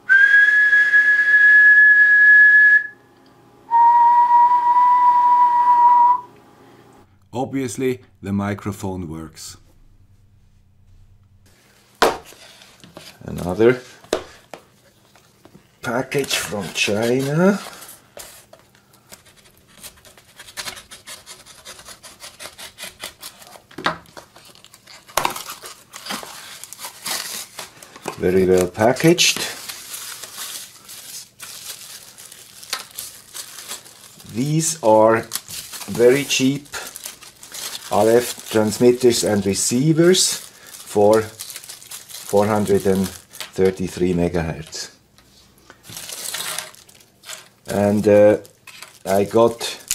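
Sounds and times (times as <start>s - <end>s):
high whistle tone: 0.0s - 3.0s, 3.7s - 6.4s
lower whistle tone: 0.0s - 3.0s, 3.7s - 6.4s
blade cutting cardboard package: 16.1s - 34.3s, 45.9s - 47.5s.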